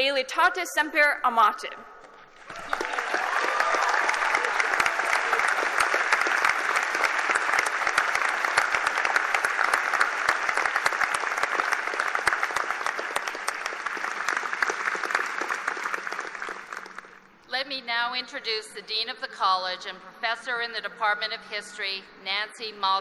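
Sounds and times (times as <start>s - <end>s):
crowd applauding: 2.3s - 17.3s.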